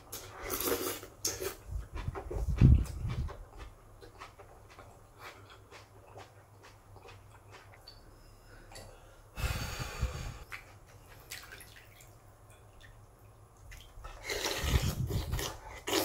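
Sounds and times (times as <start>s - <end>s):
wet slurping of broth: 14.1s - 16.0s.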